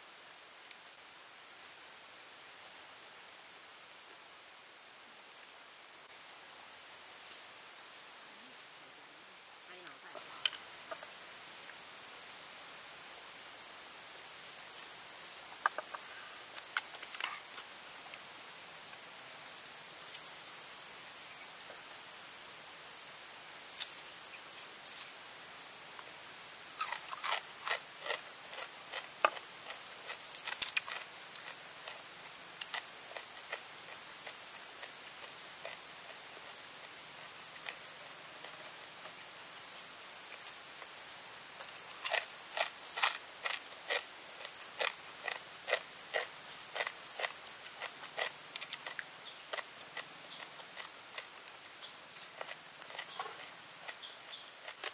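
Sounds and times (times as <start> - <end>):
crisp snaps and crunches eating: 0.0 - 1.0, 15.6 - 18.2, 26.7 - 35.8, 41.6 - 54.9
high-pitched insect drone: 9.7 - 51.9.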